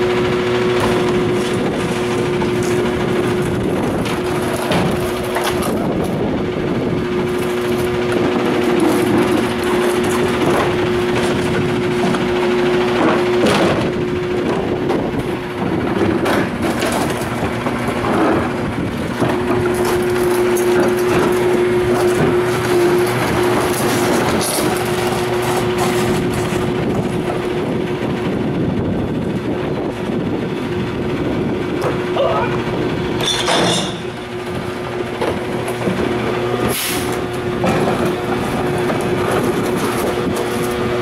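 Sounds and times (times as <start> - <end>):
garbage truck idling: 0.0 - 41.0.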